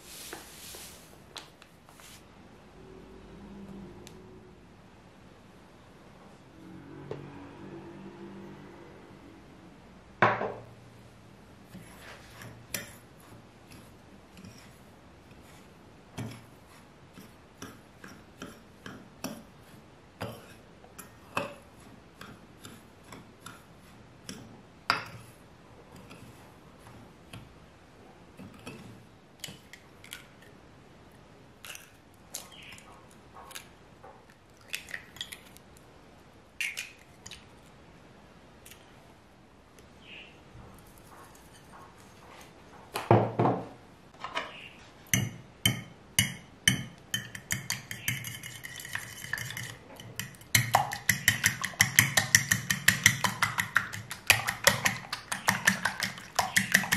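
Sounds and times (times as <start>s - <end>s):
fork scraping ceramic tray: 47.4s - 50.4s
eggs cracking: 47.4s - 56.9s.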